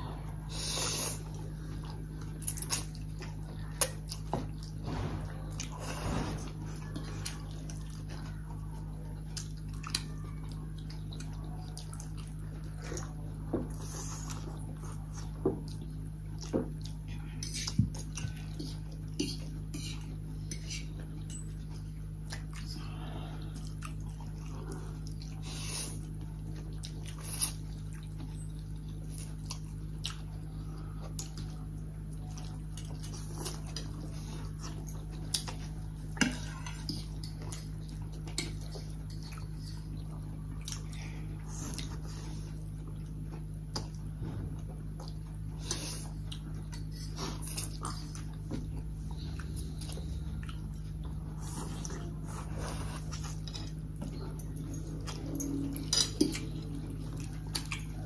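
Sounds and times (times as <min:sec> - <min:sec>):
steady low hum: 0:00.0 - 0:58.0
chewing and slurping noodles: 0:00.4 - 0:58.0
forks clinking on plates: 0:53.2 - 0:56.8.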